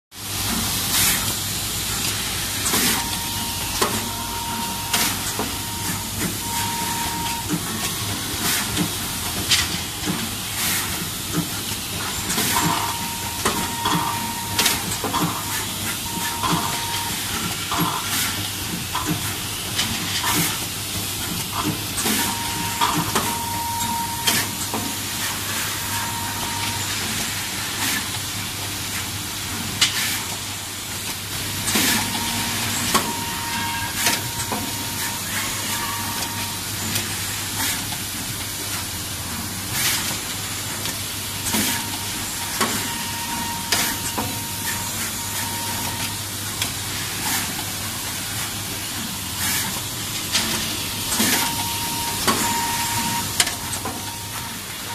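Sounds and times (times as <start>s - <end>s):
short high tones: 2.8s - 7.6s, 31.8s - 36.7s.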